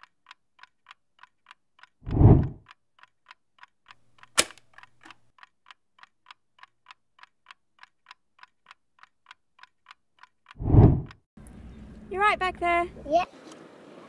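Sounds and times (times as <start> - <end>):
clock ticking: 0.0 - 10.6
sharp loud click: 4.3 - 4.7.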